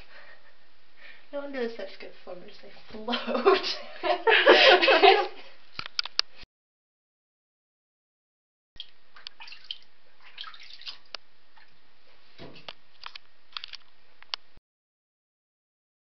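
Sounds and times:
bathwater lapping and splashing: 8.8 - 11.8.

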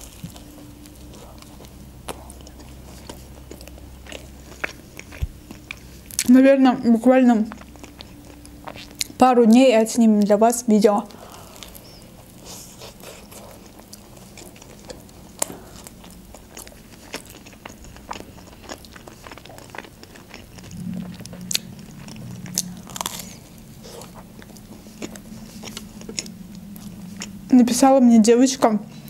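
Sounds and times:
crunchy sandwich chewing: 0.0 - 6.3, 11.1 - 27.4.

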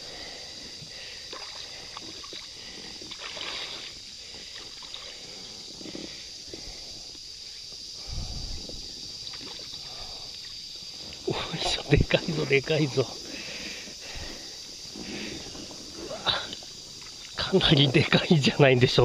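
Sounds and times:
high insect drone: 0.0 - 19.0
water sloshing and splashing: 1.3 - 6.7, 8.5 - 13.5.

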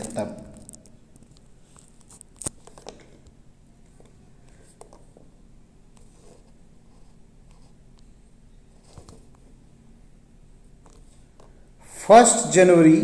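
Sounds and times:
faint clicks and rustles: 0.0 - 5.3, 5.9 - 9.6
steady low hum: 0.0 - 13.0.

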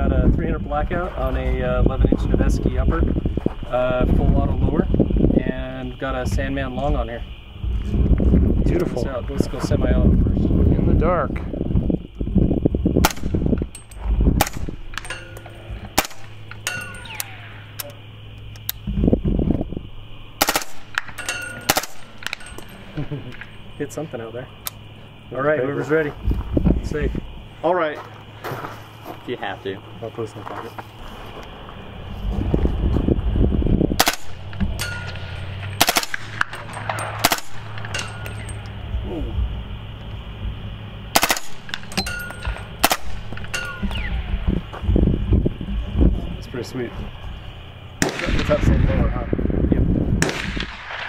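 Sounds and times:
suppressed rifle shots: 13.0 - 13.5, 14.4 - 15.2, 15.9 - 17.8, 20.4 - 22.7, 34.0 - 38.5, 41.1 - 44.3, 48.0 - 49.0, 50.2 - 51.0
short metallic ring: 14.9 - 17.6, 21.0 - 22.9, 34.3 - 35.8, 36.4 - 38.7, 41.7 - 42.7, 43.3 - 44.1.

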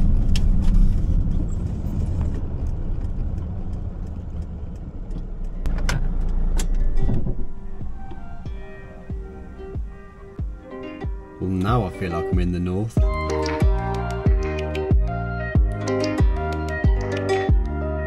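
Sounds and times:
van engine and road rumble: 0.0 - 18.0
music: 7.1 - 18.0.

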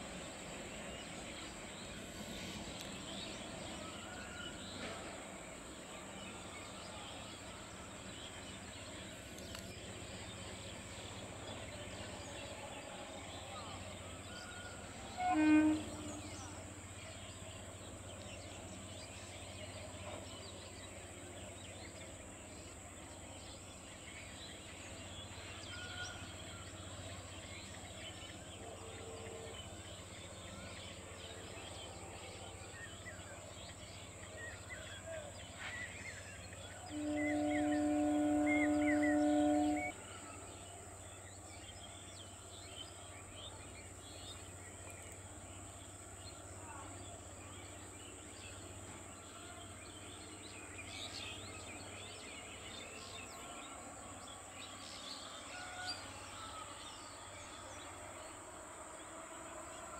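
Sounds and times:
insect drone: 0.0 - 59.9
train horn blast: 8.6 - 17.6, 35.6 - 40.7
birds chirping: 32.7 - 40.2.

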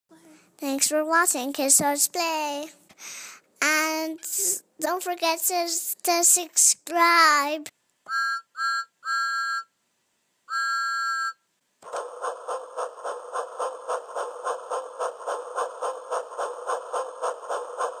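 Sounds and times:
rhythmic train chugging: 11.8 - 18.0.

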